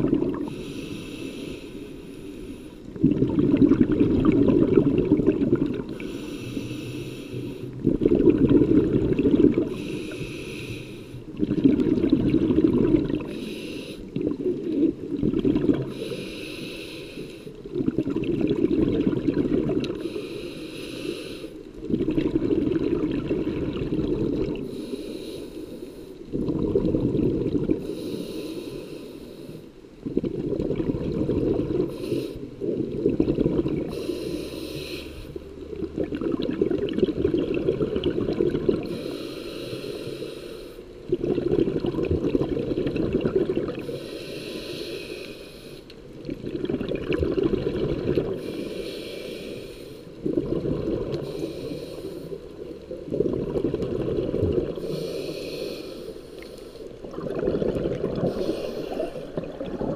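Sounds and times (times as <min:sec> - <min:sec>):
exhaled air bubbling: 0:00.0 - 0:25.3, 0:26.0 - 0:59.9
regulator inhale hiss: 0:00.4 - 0:03.0, 0:05.8 - 0:07.9, 0:09.6 - 0:11.4, 0:13.2 - 0:14.3, 0:15.8 - 0:17.7, 0:19.9 - 0:21.8, 0:24.4 - 0:26.3, 0:27.7 - 0:29.9, 0:31.8 - 0:32.8, 0:33.8 - 0:35.6, 0:38.8 - 0:41.1, 0:43.8 - 0:46.2, 0:48.2 - 0:53.1, 0:54.6 - 0:57.1, 0:58.1 - 0:59.9.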